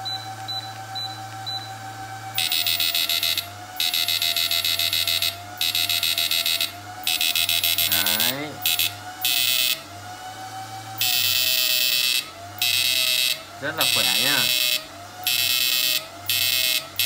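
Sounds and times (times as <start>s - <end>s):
steady electrical hum: 0.0s - 9.9s
high-pitched rapid buzz: 2.4s - 9.8s, 11.0s - 17.0s.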